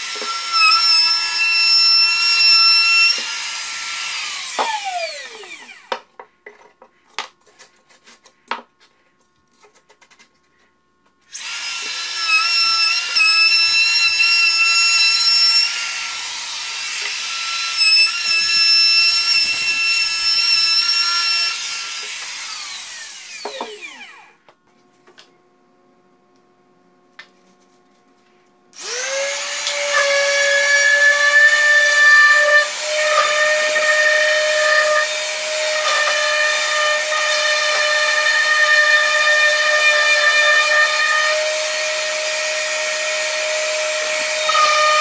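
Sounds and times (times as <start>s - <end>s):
electric router whining: 0.0s - 6.0s, 11.3s - 24.3s, 28.8s - 45.0s.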